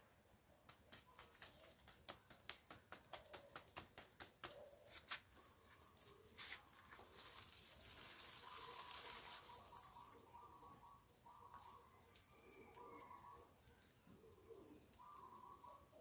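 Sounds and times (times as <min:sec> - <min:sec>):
soil crackling: 0:00.7 - 0:10.6.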